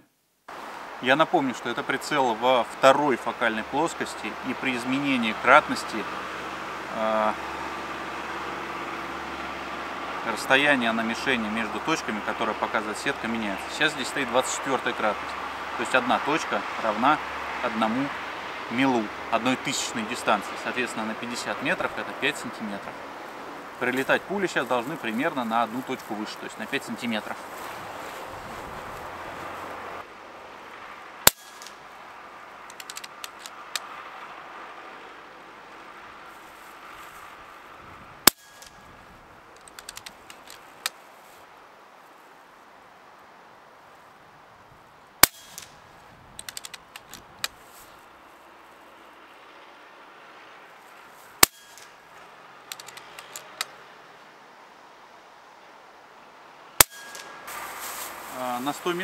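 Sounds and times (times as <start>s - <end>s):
light clicks: 32.7s - 33.9s, 39.6s - 41.0s, 46.4s - 47.6s, 52.7s - 53.8s.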